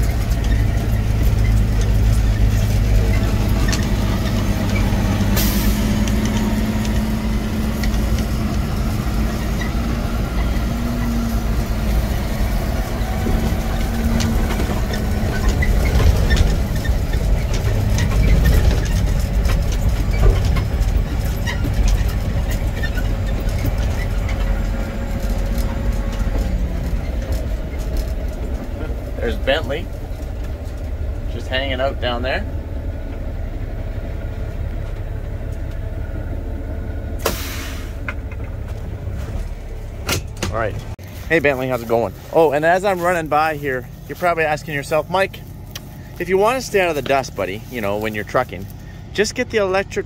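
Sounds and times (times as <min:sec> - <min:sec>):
diesel truck engine running: 0:00.0 - 0:50.0
air brake hiss: 0:05.4 - 0:05.9, 0:37.2 - 0:38.0.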